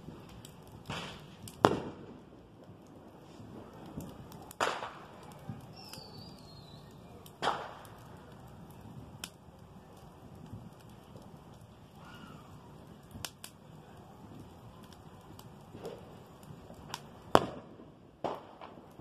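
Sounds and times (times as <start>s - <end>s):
wood fire crackling: 0.0s - 19.0s
loud sharp bangs with echo: 7.4s - 7.8s.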